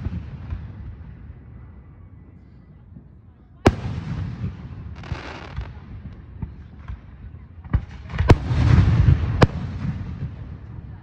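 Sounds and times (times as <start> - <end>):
faint fireworks pops: 0.0 - 1.4, 2.7 - 11.0
fireworks bangs: 3.7 - 11.0.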